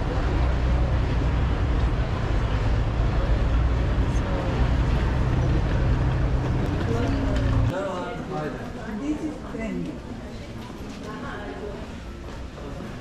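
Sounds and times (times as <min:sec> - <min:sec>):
diesel engine humming: 0:00.0 - 0:07.7.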